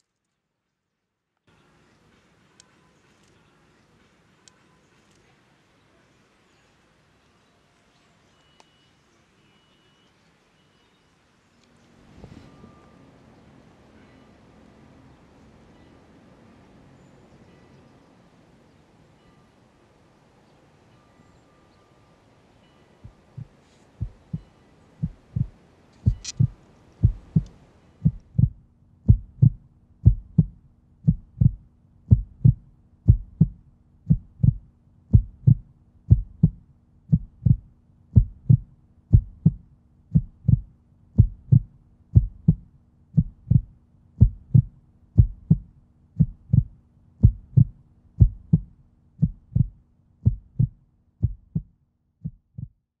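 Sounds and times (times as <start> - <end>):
faint steady hum: 1.5 - 52.7
low thuds in pairs: 23.1 - 39.6, 40.2 - 52.8.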